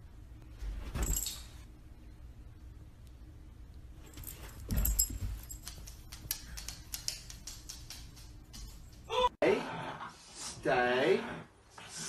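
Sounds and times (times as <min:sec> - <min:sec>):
dog collar tags jingling: 0:04.1 - 0:09.1
paws clicking on hardwood floor: 0:04.1 - 0:09.1.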